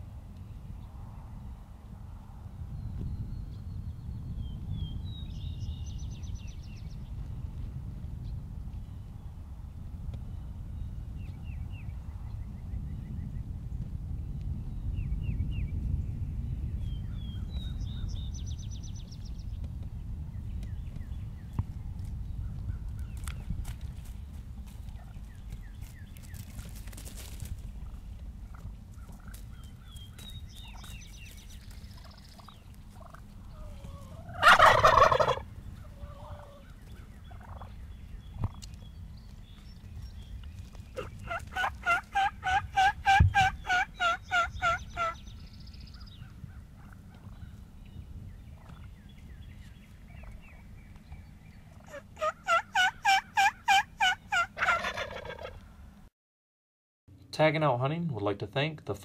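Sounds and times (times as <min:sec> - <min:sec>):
turkey gobbling: 0:31.9 - 0:37.8, 0:40.9 - 0:45.2, 0:46.7 - 0:47.4, 0:48.6 - 0:48.9, 0:51.6 - 0:55.6
turkey yelps: 0:32.0 - 0:37.7, 0:40.9 - 0:45.2, 0:51.7 - 0:55.6.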